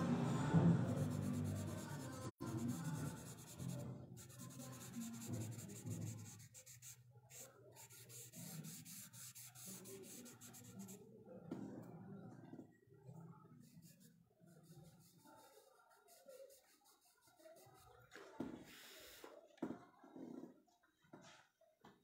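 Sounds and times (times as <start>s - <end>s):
charcoal pencil scratching on paper: 0.9s - 11.0s, 13.6s - 18.0s.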